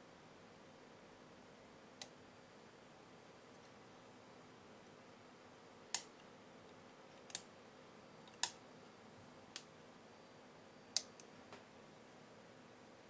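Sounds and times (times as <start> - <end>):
sharp little clicks: 5.9 - 6.3, 8.2 - 8.6.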